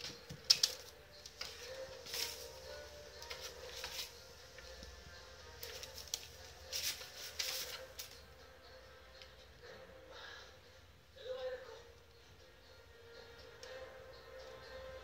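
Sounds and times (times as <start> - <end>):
newspaper rustling: 0.0 - 4.2, 5.6 - 8.2.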